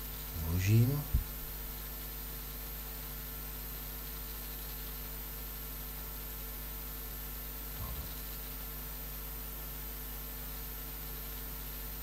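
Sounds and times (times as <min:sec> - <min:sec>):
faint high whine: 0:00.0 - 0:01.7
low hum: 0:00.3 - 0:01.6.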